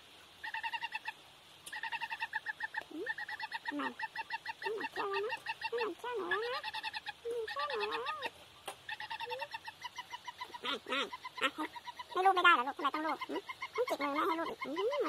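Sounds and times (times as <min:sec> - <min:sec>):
chick chirping trills: 0:00.4 - 0:15.0
low wavering chick calls: 0:00.4 - 0:15.0.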